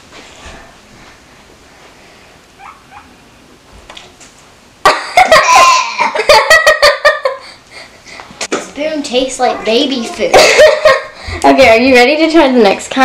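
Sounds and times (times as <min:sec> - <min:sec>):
girl laughing loudly: 0:04.8 - 0:07.6, 0:10.1 - 0:11.4.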